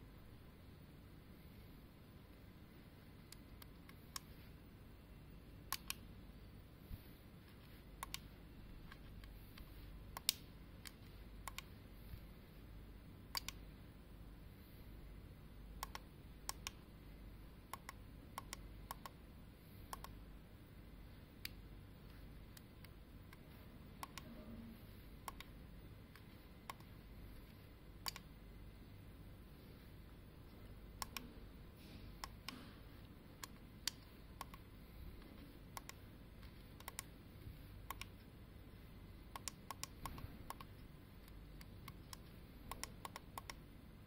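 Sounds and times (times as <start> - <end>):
switches and buttons clicking: 3.2 - 4.5, 5.6 - 6.1, 7.5 - 12.3, 13.3 - 13.7, 15.8 - 16.9, 17.7 - 19.2, 19.8 - 20.2, 21.3 - 28.4, 30.4 - 43.6.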